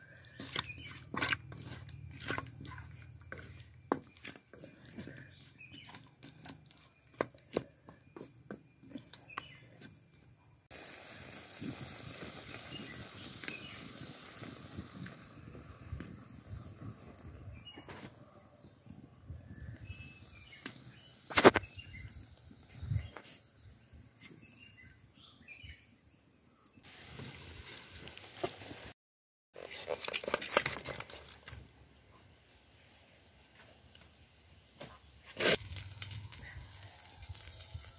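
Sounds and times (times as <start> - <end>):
steady hiss: 10.7 - 28.9, 35.4 - 37.9
sharp crack: 21.3 - 21.7.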